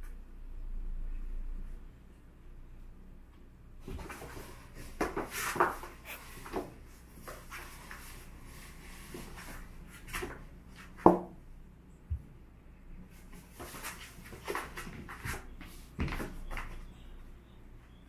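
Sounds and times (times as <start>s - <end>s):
cats scuffling on cardboard: 3.8s - 10.9s, 13.2s - 16.8s.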